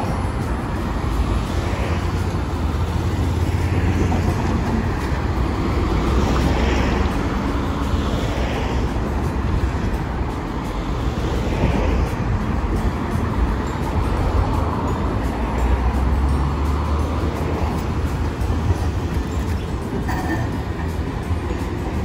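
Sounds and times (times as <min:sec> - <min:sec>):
street traffic: 0:00.0 - 0:22.0
tram rolling with low rumble: 0:00.0 - 0:22.0.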